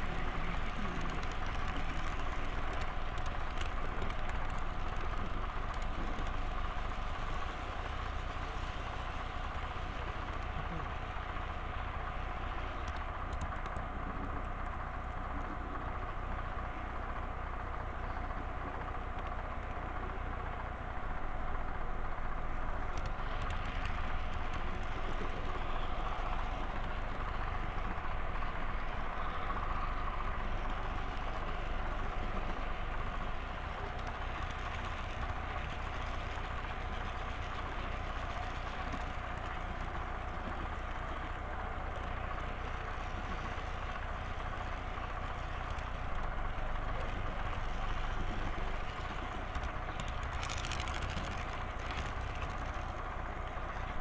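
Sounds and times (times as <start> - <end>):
model train humming: 0.0 - 51.0.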